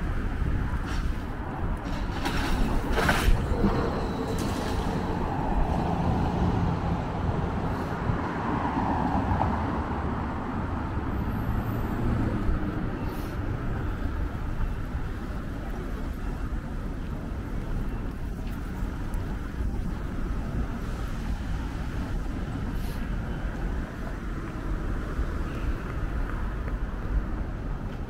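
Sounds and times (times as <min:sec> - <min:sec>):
passing cars and heavy vehicles: 0:00.0 - 0:28.0.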